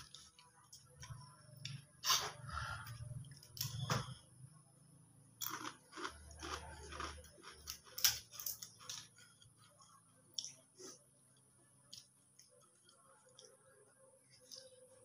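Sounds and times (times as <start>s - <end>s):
crackers crunching: 5.4s - 10.6s.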